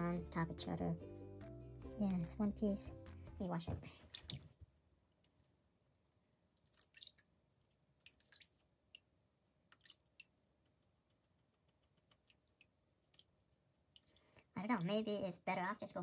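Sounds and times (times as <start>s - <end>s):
faint small clicks and taps: 9.7s - 14.2s.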